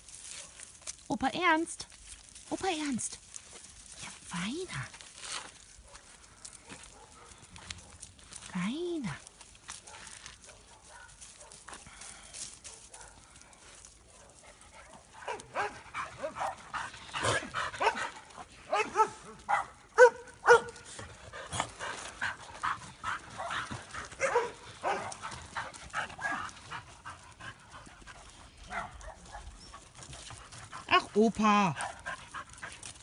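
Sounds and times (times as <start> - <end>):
dogs barking and yipping: 5.7 - 8.2, 9.3 - 11.8, 12.6 - 33.0.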